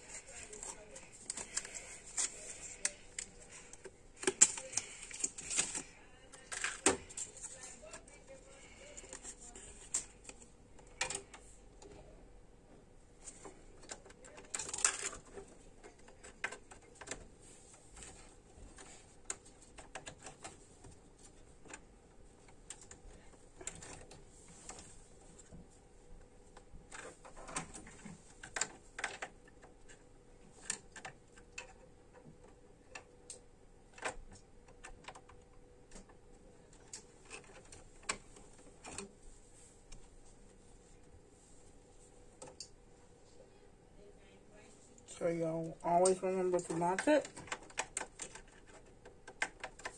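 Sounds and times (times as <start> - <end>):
computer parts clicking: 0.2 - 8.0.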